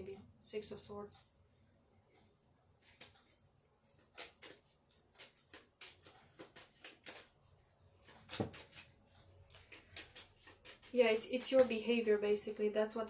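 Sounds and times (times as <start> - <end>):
playing cards shuffled: 2.8 - 8.9, 9.5 - 11.8.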